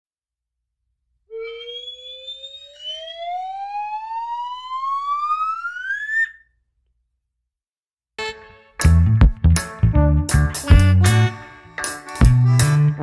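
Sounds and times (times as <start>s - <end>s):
rising tone sound effect: 1.3s - 6.4s.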